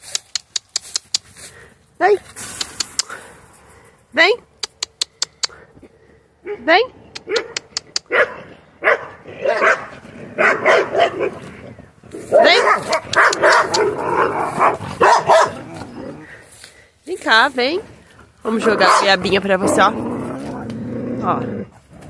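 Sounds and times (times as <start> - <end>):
sharp clicks: 0.0 - 1.4, 2.4 - 3.2, 4.6 - 5.6, 7.2 - 8.1, 12.9 - 13.9
dogs barking: 6.4 - 11.6, 12.2 - 16.3, 18.5 - 19.9.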